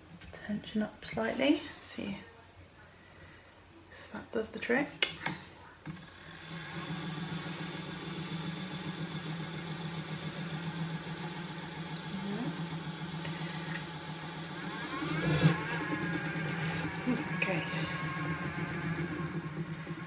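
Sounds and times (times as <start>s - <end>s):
electric spinning wheel humming: 5.8s - 20.0s.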